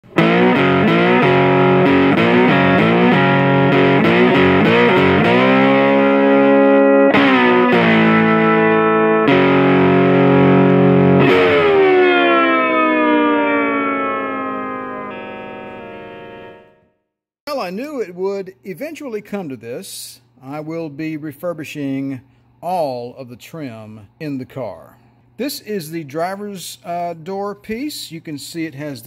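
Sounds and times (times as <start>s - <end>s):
distorted electric guitar chords: 0.0s - 17.0s.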